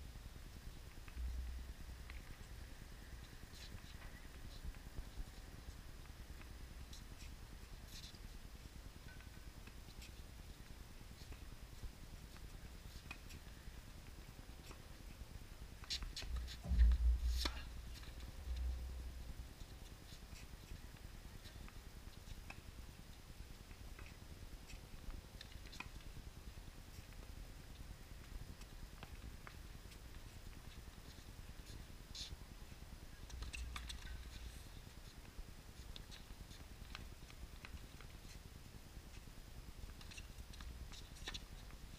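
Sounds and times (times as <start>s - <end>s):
low rumble: 16.6s - 19.4s.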